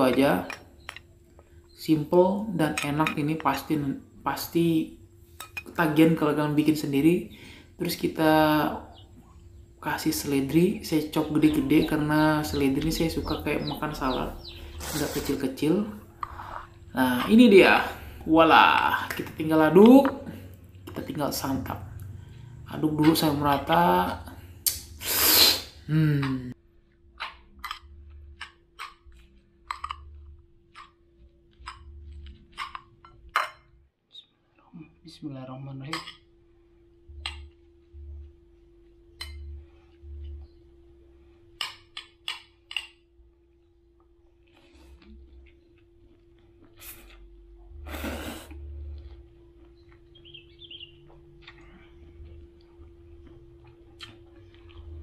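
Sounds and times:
person slurping noodles: 14.8 - 15.3, 16.2 - 16.8, 25.0 - 26.0, 47.9 - 48.6.

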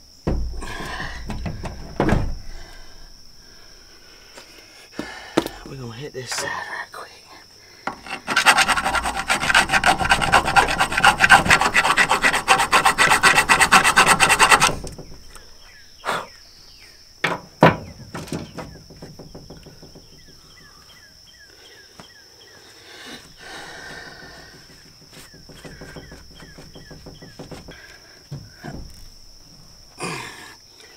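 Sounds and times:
sharp knocks: 0.0 - 2.9, 7.9 - 15.4, 17.2 - 20.8, 23.8 - 29.5
faint bird or insect chirps: 0.0 - 7.9, 14.9 - 30.9
hand file rasping on metal: 7.9 - 14.9.

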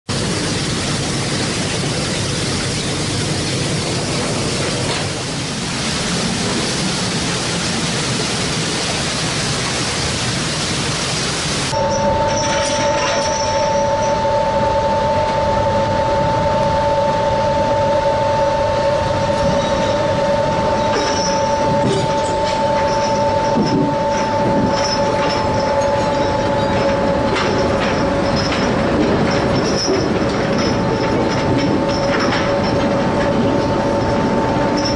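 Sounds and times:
machinery running: 0.1 - 34.9
two-note machine whine: 11.7 - 34.9
rattles: 20.9 - 34.9.

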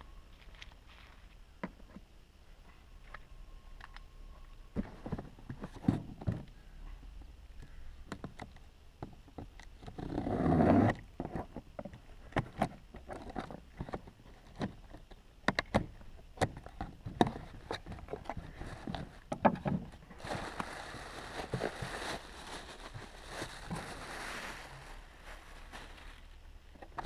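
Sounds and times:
plastic packaging crinkling: 20.0 - 26.4.

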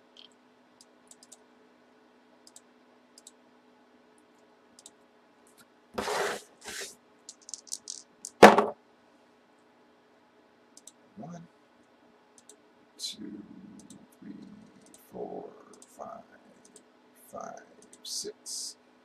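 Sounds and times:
low steady hum: 0.0 - 19.0
cardboard box scraping: 6.0 - 6.9.

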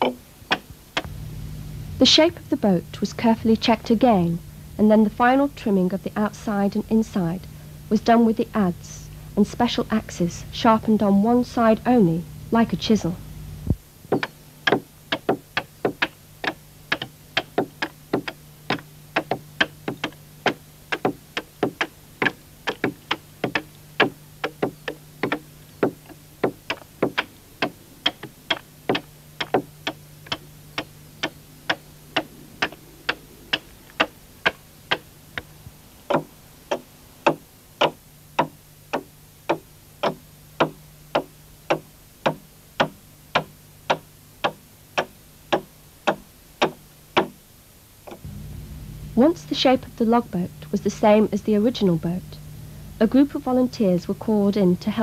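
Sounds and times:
hand axe chopping log: 40.0 - 47.3.

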